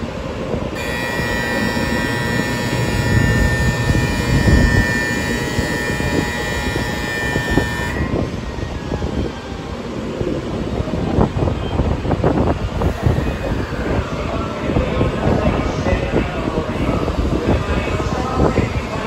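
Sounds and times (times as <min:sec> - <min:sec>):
low rumble of standing train: 0:00.0 - 0:19.0
electronic departure bell ringing: 0:00.8 - 0:08.9.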